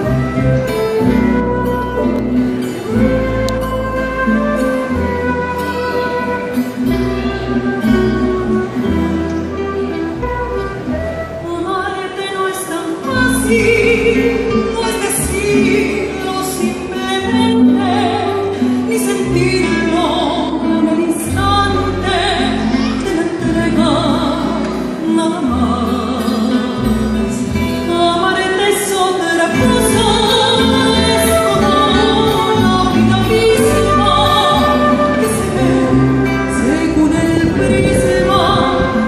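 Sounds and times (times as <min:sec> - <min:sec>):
acoustic guitars: 0:00.0 - 0:39.0
woman singing with vibrato: 0:00.0 - 0:39.0
electric bass: 0:29.6 - 0:39.0.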